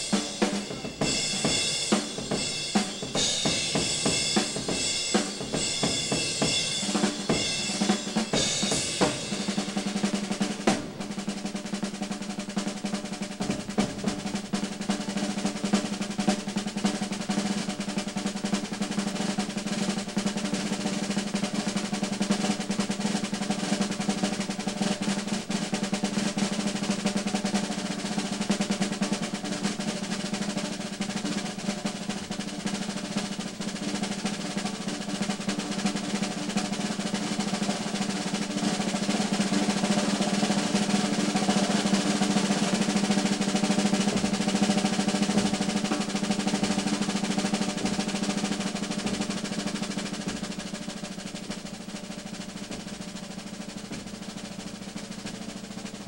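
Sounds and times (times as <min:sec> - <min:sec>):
bass drum beats: 0:00.0 - 0:56.0
snare drum roll: 0:00.0 - 0:56.0.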